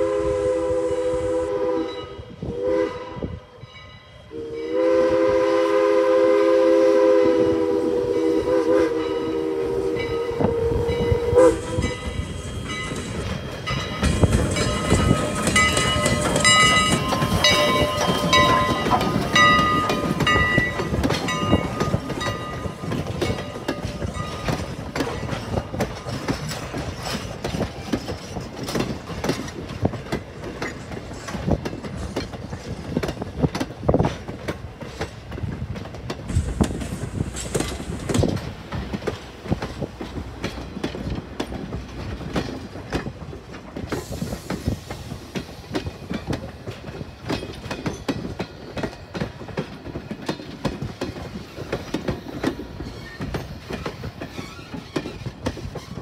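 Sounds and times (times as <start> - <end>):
train coaches rumbling: 0.0 - 56.0
wheels clicking over rail joints: 11.8 - 56.0.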